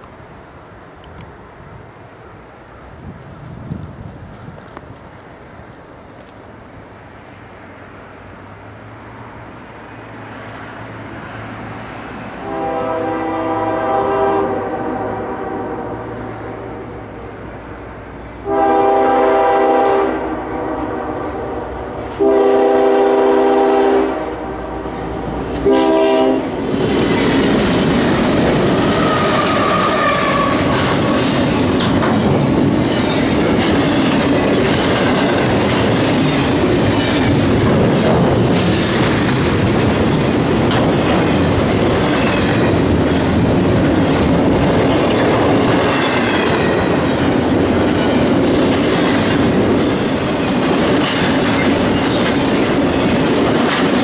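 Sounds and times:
diesel locomotive passing: 0.0s - 54.0s
train air horn blasts: 12.4s - 17.0s, 18.4s - 26.6s, 28.8s - 30.8s
train wheels clicking over rail joints: 24.3s - 54.0s.

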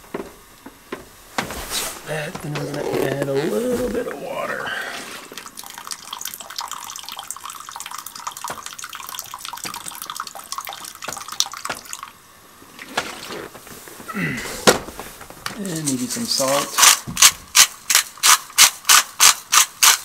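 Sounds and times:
water pouring into glass pot: 5.3s - 12.2s.

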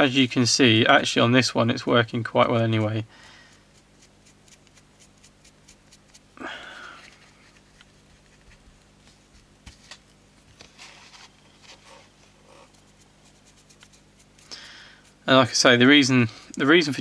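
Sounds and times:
scratchy paintbrush strokes: 2.2s - 6.3s, 10.8s - 15.8s.

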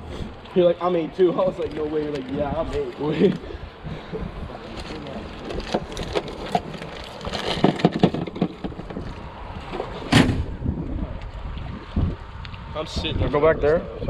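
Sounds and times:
wind on microphone: 3.4s - 14.0s
small clicks and knocks of tackle: 4.9s - 9.2s.

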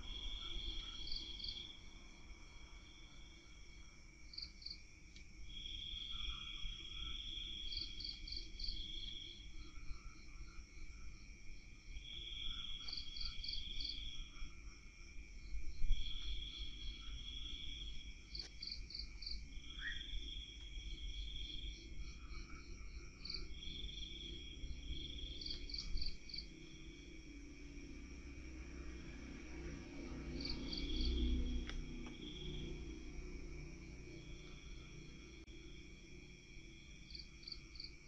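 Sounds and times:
crickets chirping: 0.0s - 38.0s
low steady rumble: 24.2s - 36.8s.

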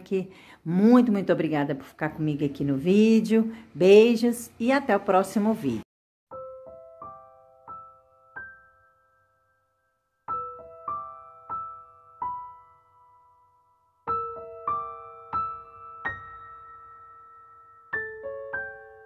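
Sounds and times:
gentle piano notes: 6.3s - 19.0s.

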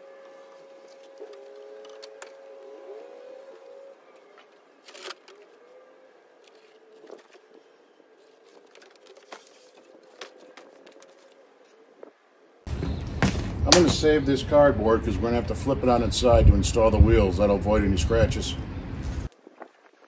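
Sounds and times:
cardboard box rustling and scraping: 8.2s - 11.4s.

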